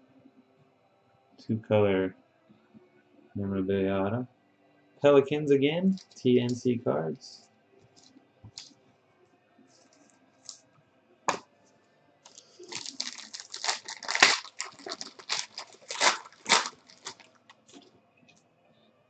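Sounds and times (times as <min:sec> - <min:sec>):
sharp crackling: 0:12.3 - 0:17.8
foil wrapper tearing and crinkling: 0:12.3 - 0:17.9.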